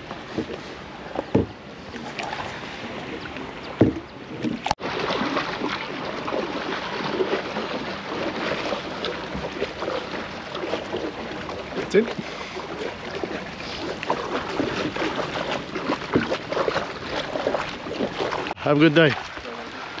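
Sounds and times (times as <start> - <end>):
water splashing and lapping: 0.0 - 20.0
dull knocks on boat: 1.2 - 1.6, 3.8 - 4.6.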